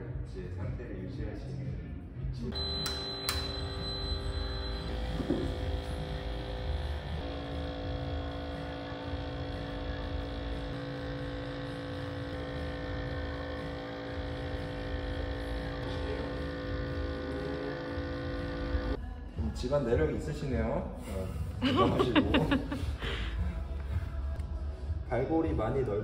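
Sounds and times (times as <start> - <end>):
electric machine humming: 2.5 - 19.0.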